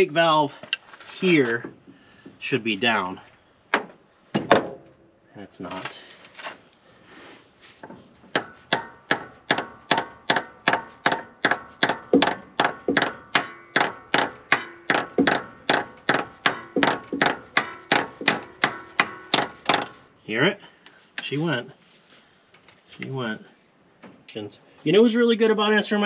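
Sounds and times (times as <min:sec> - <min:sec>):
small hammer tapping on metal: 0:07.8 - 0:19.9.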